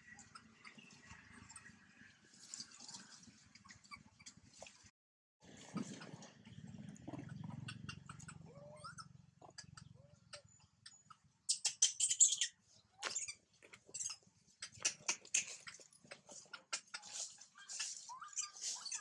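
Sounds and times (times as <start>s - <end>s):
dry leaves rustling: 17.0s - 19.0s.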